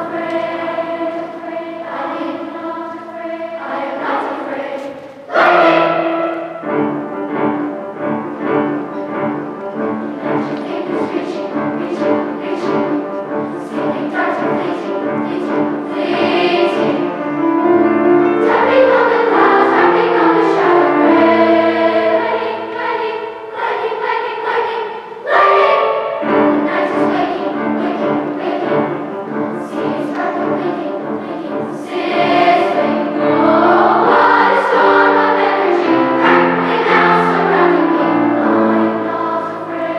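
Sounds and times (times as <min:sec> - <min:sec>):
children's choir singing: 0:00.0 - 0:39.9.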